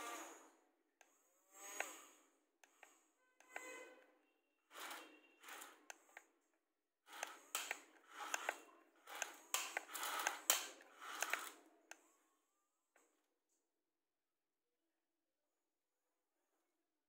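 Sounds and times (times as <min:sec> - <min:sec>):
toy excavator grinding: 0:00.0 - 0:00.5, 0:01.5 - 0:04.0, 0:04.6 - 0:06.3, 0:07.1 - 0:11.9.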